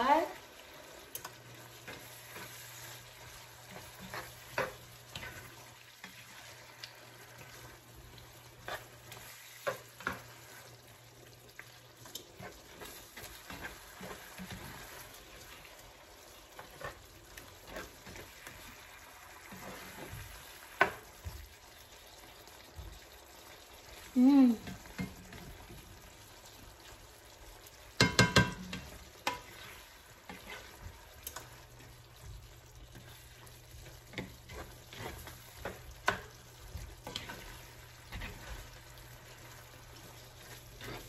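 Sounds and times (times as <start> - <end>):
meat sizzling in a skillet: 0.0 - 41.0
spatula scraping a pan: 1.2 - 10.9, 12.0 - 21.1, 28.0 - 41.0.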